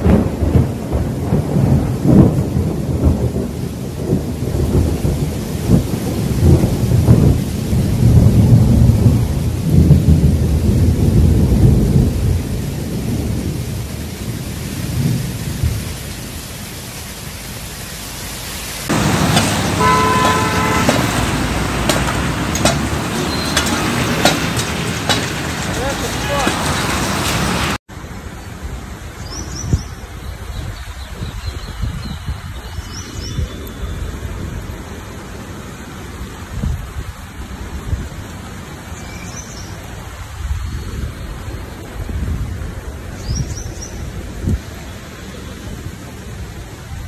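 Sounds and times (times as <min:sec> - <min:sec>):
heavy rain: 0:00.0 - 0:47.0
traffic noise on wet street: 0:00.0 - 0:47.0
deep uneven rumbling: 0:18.9 - 0:27.8.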